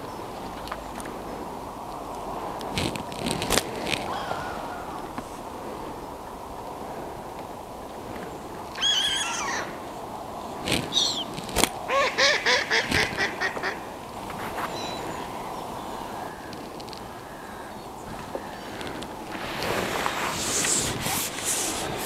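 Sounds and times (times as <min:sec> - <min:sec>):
waterfowl calling: 0:04.0 - 0:05.3, 0:08.7 - 0:09.9, 0:10.8 - 0:19.0.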